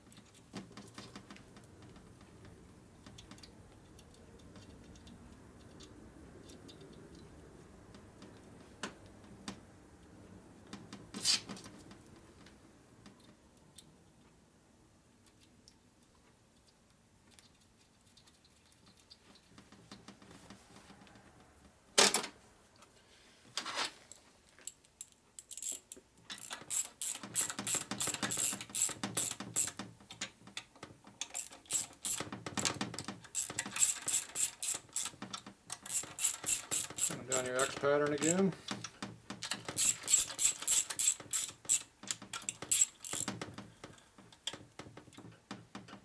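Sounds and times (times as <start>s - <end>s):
tools clattering: 24.6s - 29.7s, 31.3s - 38.8s, 39.4s - 44.0s
hand ratchet clicking: 24.8s - 29.8s, 31.2s - 32.3s, 33.3s - 38.4s, 39.4s - 43.4s.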